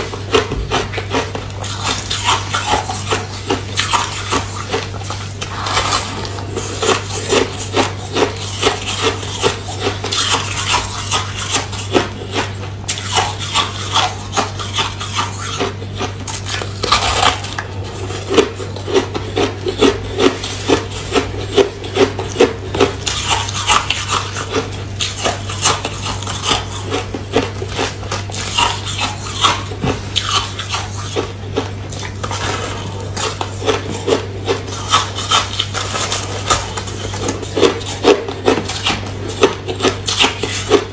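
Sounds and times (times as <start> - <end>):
ice crunching being chewed: 0.0 - 40.9.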